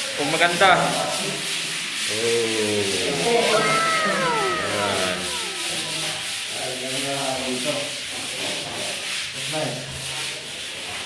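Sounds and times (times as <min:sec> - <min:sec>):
faint wavering pitched sounds: 0:02.1 - 0:06.3.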